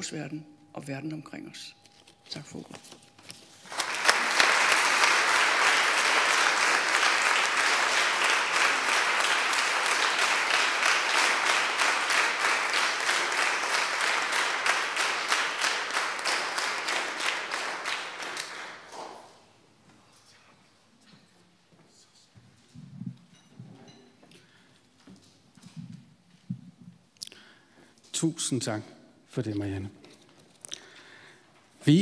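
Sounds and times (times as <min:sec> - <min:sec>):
audience applauding: 0:03.6 - 0:19.4.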